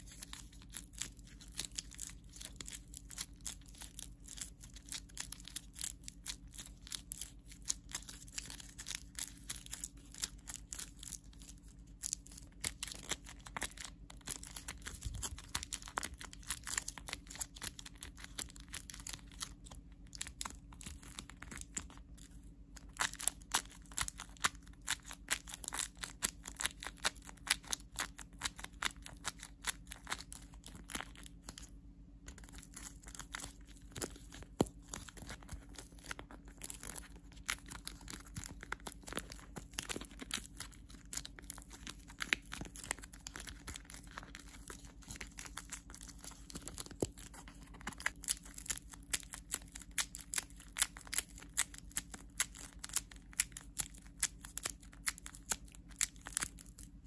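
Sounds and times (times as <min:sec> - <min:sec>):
faint low hum: 0:00.0 - 0:57.0
toy crinkling and crackling: 0:00.0 - 0:57.0.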